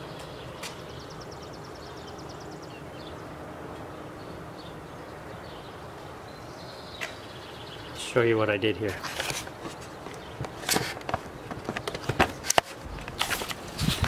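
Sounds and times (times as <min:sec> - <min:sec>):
bird chirps: 0:00.0 - 0:08.2.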